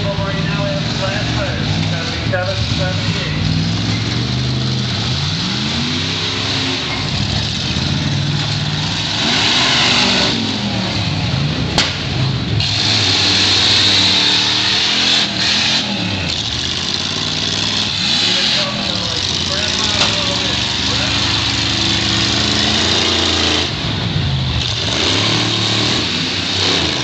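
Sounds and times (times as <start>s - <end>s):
car engines revving hard: 0.0s - 27.0s
sharp bang: 11.7s - 12.2s.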